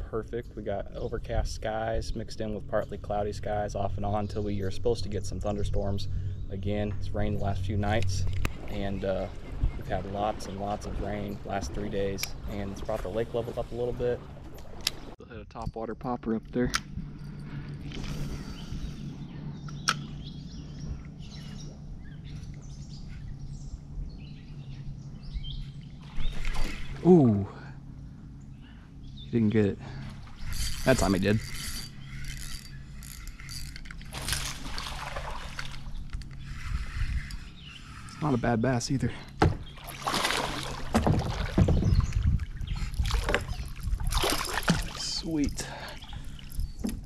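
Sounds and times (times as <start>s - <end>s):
birds chirping: 0.0s - 47.0s
low background rumble: 0.0s - 47.0s
water splashing and sloshing: 6.6s - 15.2s, 19.9s - 28.6s, 29.4s - 47.0s
sharp knocks on kayak: 39.4s - 42.0s.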